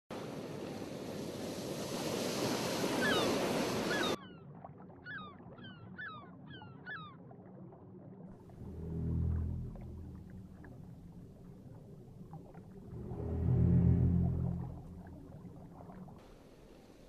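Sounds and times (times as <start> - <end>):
ocean surf: 0.1 - 4.2, 8.5 - 16.2
wind: 0.1 - 17.0
underwater ambience: 4.5 - 17.0
low rumble: 8.4 - 16.2.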